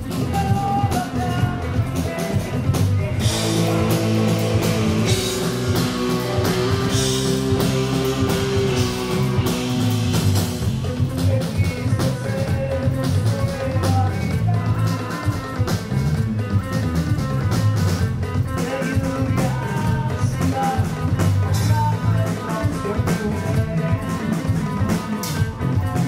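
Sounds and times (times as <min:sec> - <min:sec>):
bass guitar: 0:00.0 - 0:26.0
electric guitar: 0:00.0 - 0:26.0
drum kit hits: 0:03.1 - 0:12.2.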